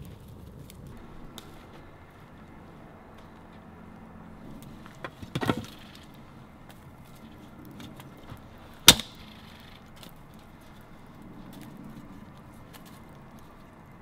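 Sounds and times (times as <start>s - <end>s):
stick breaking crack: 4.6s - 10.9s.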